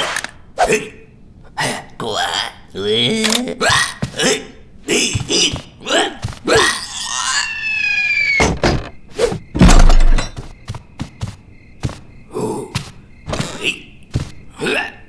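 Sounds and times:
squeaky creature vocal: 1.6s - 4.6s, 5.3s - 8.5s.

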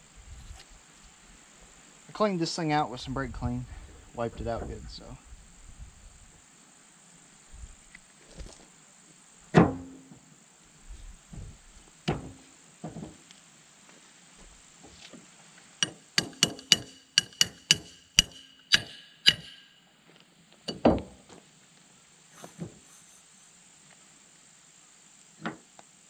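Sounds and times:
sharp ringing metal knocks: 15.8s - 19.8s, 20.7s - 21.0s.

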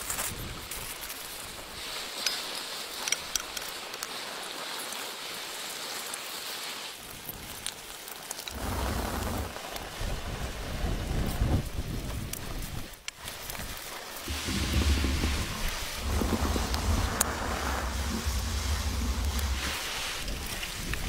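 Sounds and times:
sharp crackles: 6.4s - 21.0s
eggs sizzling in a pan: 14.2s - 21.0s
low rumble: 14.3s - 21.0s.

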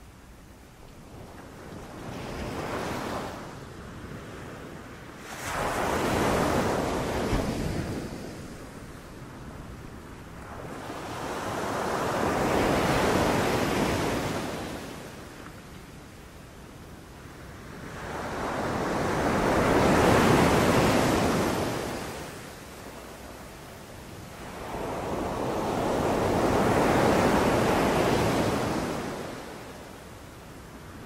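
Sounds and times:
sea waves breaking on beach: 5.2s - 8.4s.

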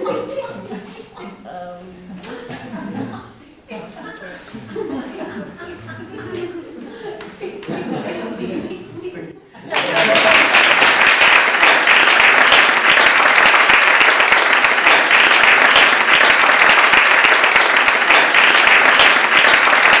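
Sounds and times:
audience applauding: 9.7s - 20.0s.

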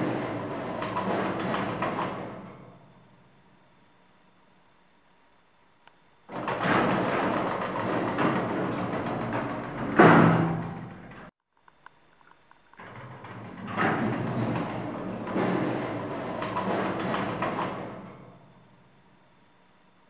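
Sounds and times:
elevator doors banging shut: 0.0s - 3.2s, 6.3s - 11.3s, 12.8s - 18.9s
elevator doors sliding open: 0.0s - 3.2s, 6.3s - 11.3s, 12.8s - 18.9s.

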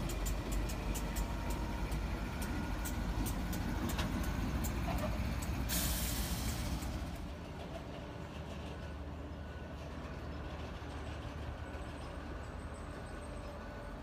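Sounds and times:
train wheels clicking on rails: 0.0s - 8.9s
locomotive engine rumble: 0.0s - 14.0s
air brake hiss: 5.7s - 6.8s.

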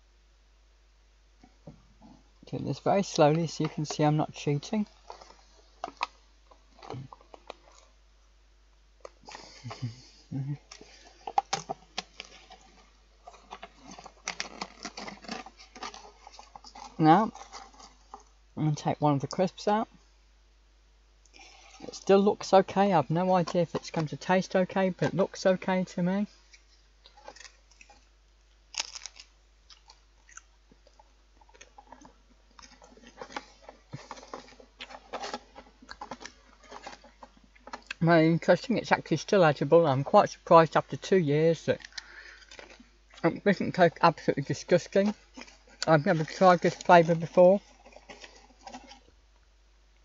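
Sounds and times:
crisp crunching: 2.5s - 8.0s, 9.0s - 18.4s, 21.2s - 39.4s, 41.7s - 49.2s
seal peeling with crackles: 2.8s - 8.0s, 9.0s - 18.4s, 21.2s - 25.4s, 26.4s - 38.0s, 41.7s - 43.3s, 44.1s - 49.2s.

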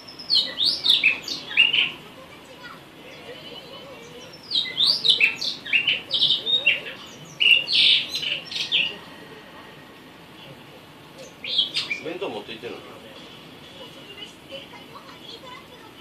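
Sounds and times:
bird singing warbling phrases: 0.0s - 9.1s, 11.0s - 12.6s.

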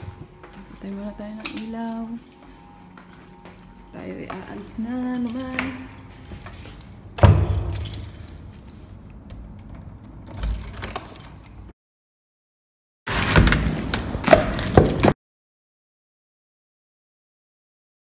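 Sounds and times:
small jingling clinks: 0.4s - 8.8s.

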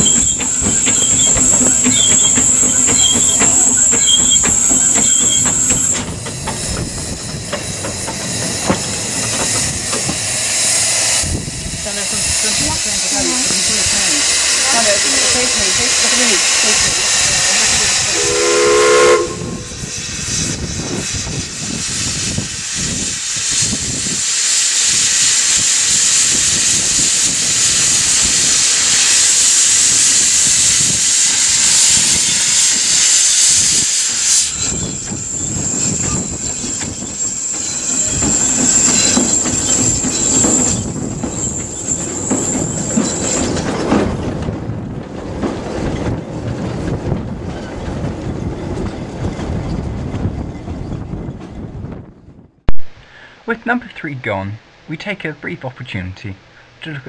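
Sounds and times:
carriages rumbling: 0.0s - 10.5s, 11.8s - 18.4s
wheels clicking on rail joints: 0.0s - 18.0s, 34.4s - 51.7s
loud steam hissing: 0.0s - 44.8s
steam whistle: 18.0s - 19.9s.

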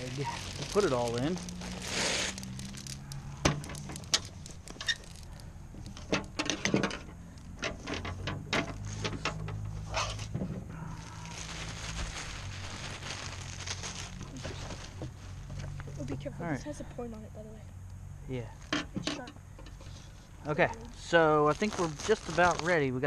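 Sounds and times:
wood fire crackling: 0.0s - 6.4s, 10.7s - 16.0s, 20.5s - 23.0s
clicks and rustles of packaging: 0.0s - 16.0s, 21.5s - 22.8s.

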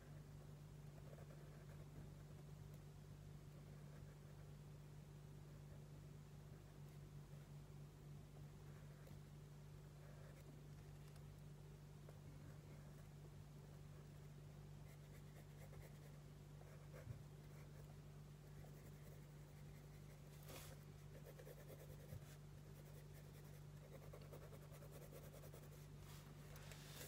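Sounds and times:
steady low hum: 0.0s - 27.0s
pencil scratching on paper: 1.0s - 2.3s, 3.7s - 4.4s, 14.8s - 17.9s, 18.5s - 25.9s.

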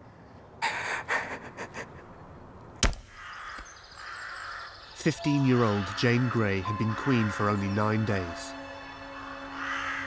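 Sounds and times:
birds chirping: 0.4s - 10.0s.

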